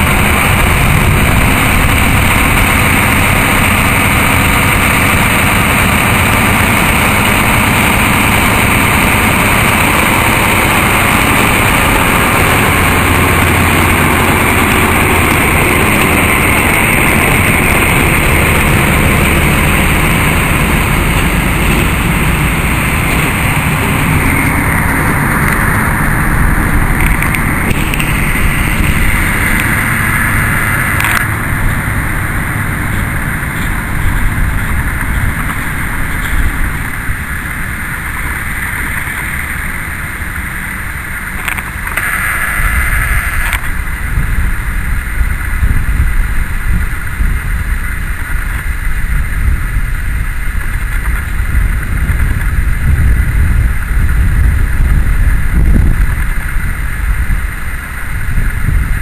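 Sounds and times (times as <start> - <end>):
diesel locomotive engine running: 0.0 - 59.0
high-pitched noise: 0.0 - 59.0
wind rumble on microphone: 0.0 - 59.0.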